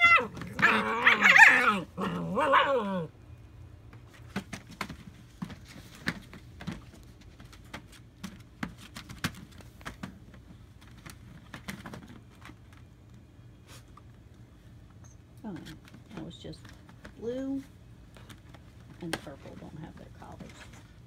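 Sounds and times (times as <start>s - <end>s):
low steady hum: 0.0s - 21.0s
puppy claws scrabbling on plastic: 3.9s - 13.2s, 15.4s - 17.4s.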